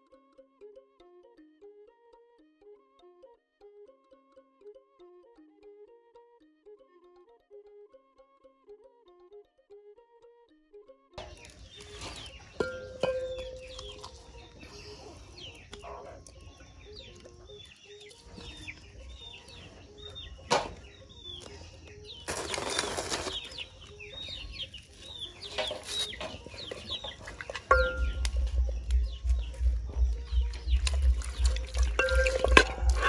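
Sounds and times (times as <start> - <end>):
birds chirping: 11.2 - 33.0.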